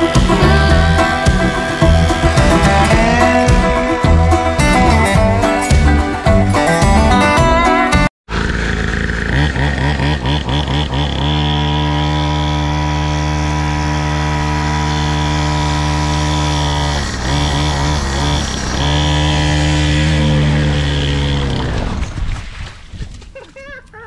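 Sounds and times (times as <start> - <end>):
mini dirt bike engine revving: 8.3 - 22.0.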